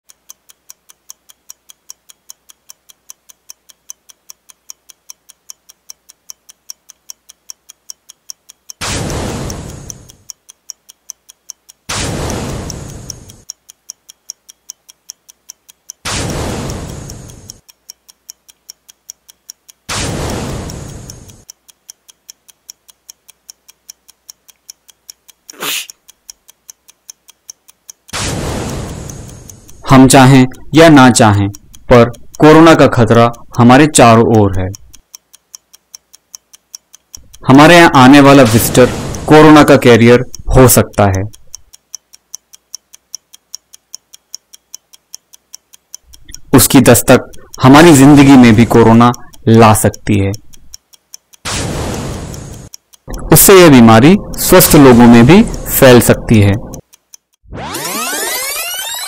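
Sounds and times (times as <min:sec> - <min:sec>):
fast clock ticking: 0:00.0 - 0:59.0
person sneezing: 0:25.5 - 0:25.9.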